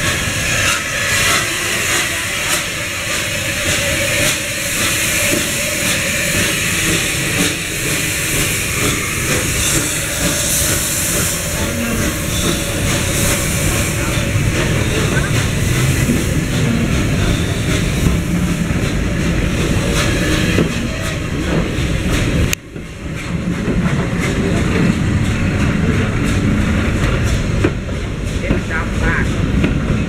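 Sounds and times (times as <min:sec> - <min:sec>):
steam locomotive hissing steam: 0:00.0 - 0:22.5.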